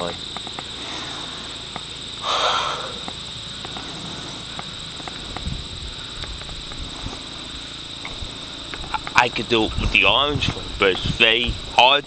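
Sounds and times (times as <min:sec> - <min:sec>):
high-pitched insect drone: 0:00.0 - 0:12.0
faint ticks: 0:00.2 - 0:00.7, 0:01.7 - 0:02.1, 0:03.0 - 0:09.2.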